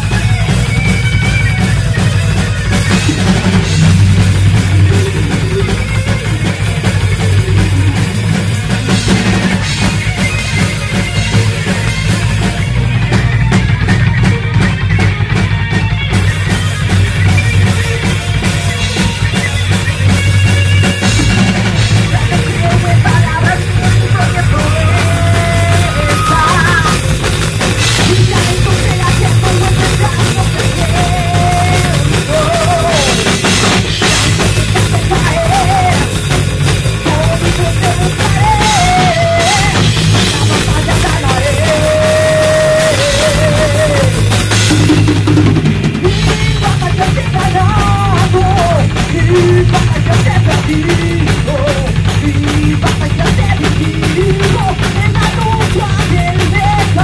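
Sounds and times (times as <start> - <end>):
wavering lead melody: 0.0 - 47.2
loud rock music: 0.0 - 57.0.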